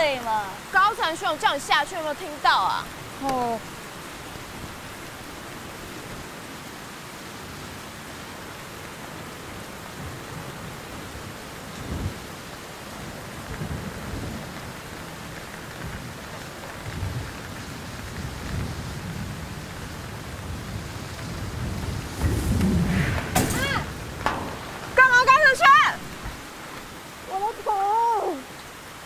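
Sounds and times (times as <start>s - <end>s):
steady rain: 0.0s - 29.0s
thunder rumbling: 9.5s - 28.4s.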